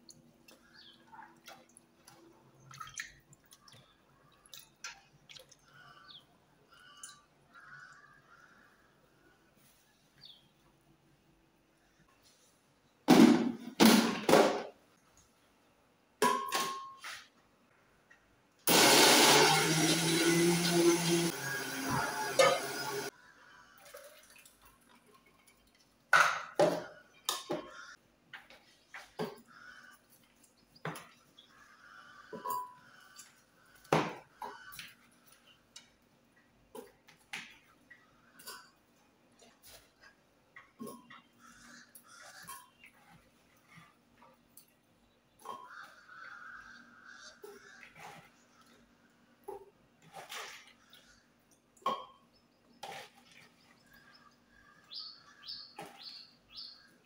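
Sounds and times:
blender motor running: 0:18.7 - 0:23.1.

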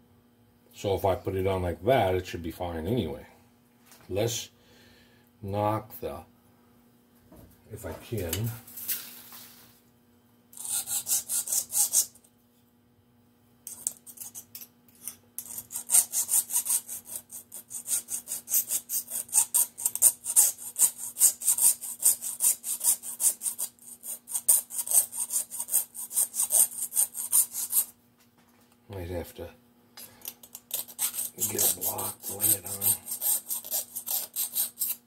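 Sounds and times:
file scraping metal: 0:10.6 - 0:12.2, 0:13.7 - 0:28.0, 0:30.3 - 0:35.0.

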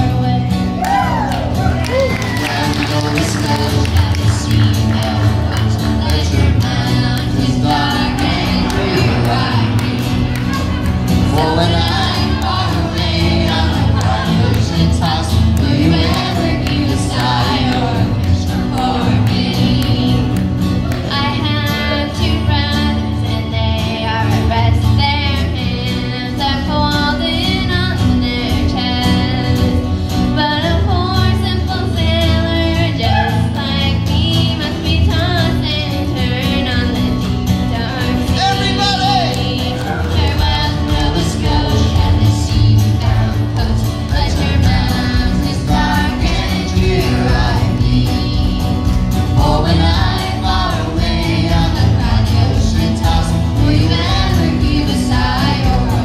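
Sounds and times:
acoustic guitars: 0:00.0 - 0:56.0
girls singing together: 0:02.1 - 0:29.8, 0:37.7 - 0:56.0.

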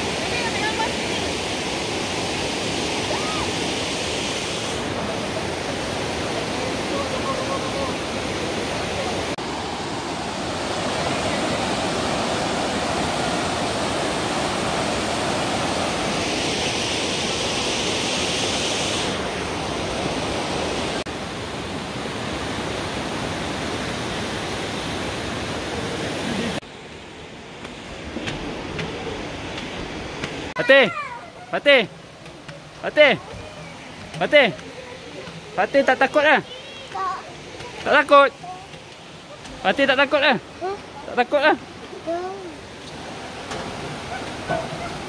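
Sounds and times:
rain falling: 0:25.7 - 0:45.0.

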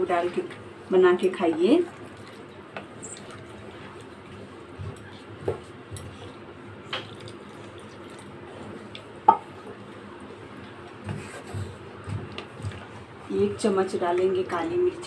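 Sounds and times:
wooden spoon stirring: 0:01.4 - 0:09.1, 0:11.0 - 0:13.2.

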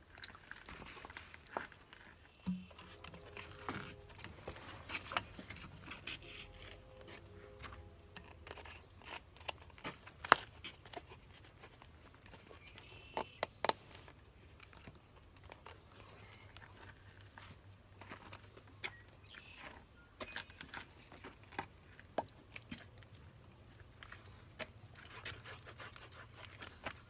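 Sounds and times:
plastic bottle clicks and crinkles: 0:02.4 - 0:06.2.

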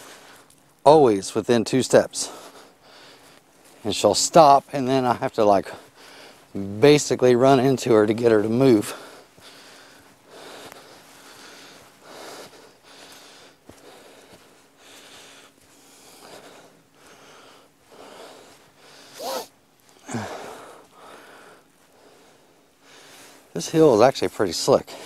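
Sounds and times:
person breathing hard: 0:02.2 - 0:03.6, 0:05.7 - 0:06.5, 0:08.8 - 0:23.5
short voiced sounds: 0:19.2 - 0:19.5.

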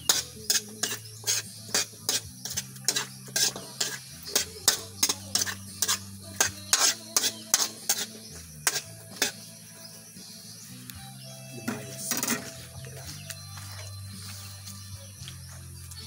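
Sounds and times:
utensil scraping a wok: 0:00.0 - 0:10.0, 0:11.7 - 0:12.8.

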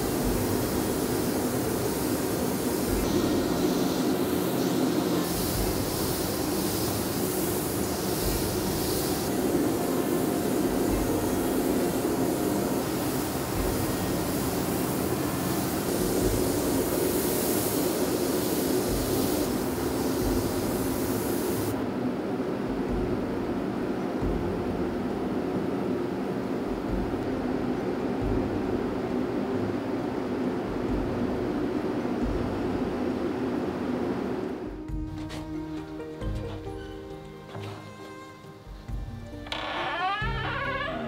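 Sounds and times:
spray gun hissing: 0:00.0 - 0:21.8
extraction fan running: 0:00.0 - 0:41.0.

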